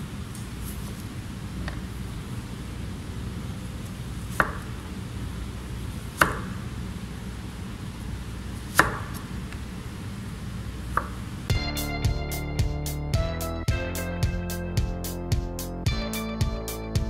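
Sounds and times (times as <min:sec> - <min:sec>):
knife chopping on cutting board: 0:04.4 - 0:04.7, 0:06.2 - 0:06.6, 0:08.7 - 0:09.2.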